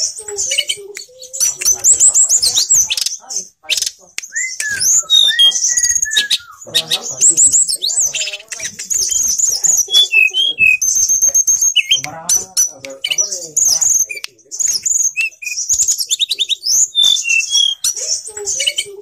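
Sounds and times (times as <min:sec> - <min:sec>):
songbird singing: 0:00.0 - 0:19.0.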